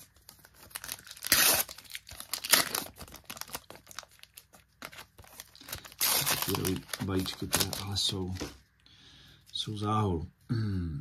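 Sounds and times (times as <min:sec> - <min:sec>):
card pack wrapper tearing: 0:00.0 - 0:08.4.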